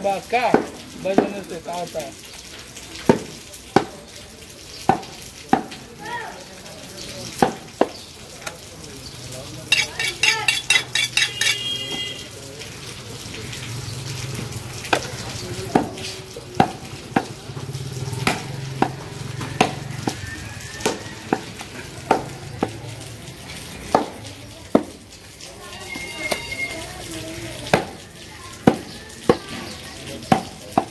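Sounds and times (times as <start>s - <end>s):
blade chopping meat on wood: 9.7s - 11.6s.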